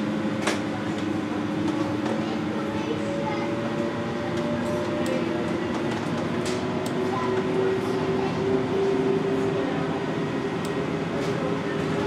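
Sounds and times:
trolleybus motor whining hum: 0:00.0 - 0:12.0.

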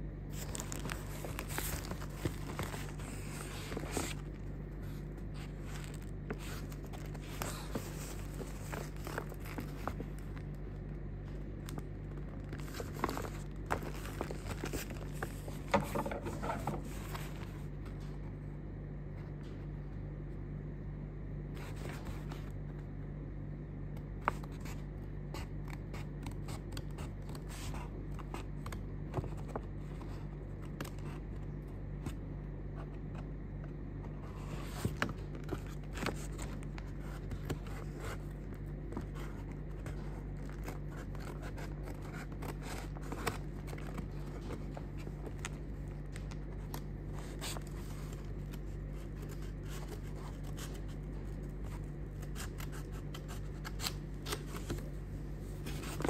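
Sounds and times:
steady low hum: 0:00.0 - 0:56.0
paper envelope rustling: 0:00.3 - 0:18.1, 0:34.2 - 0:56.0.

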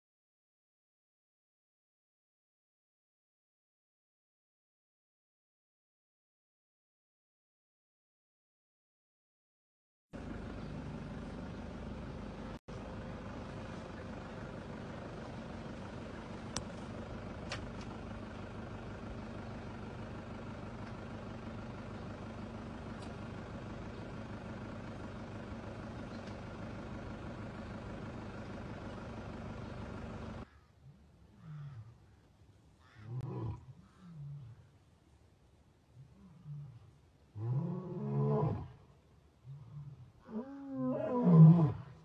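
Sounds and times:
low mechanical drone: 0:10.2 - 0:34.9.

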